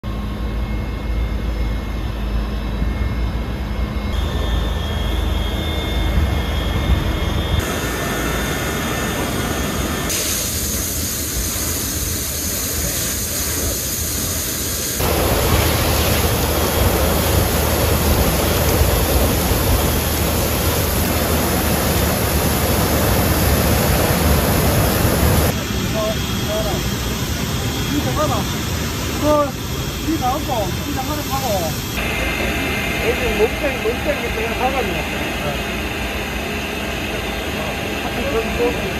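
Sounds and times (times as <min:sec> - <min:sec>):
fire engine pumps running: 0:00.0 - 0:38.9
fire hoses spraying water: 0:10.1 - 0:26.8.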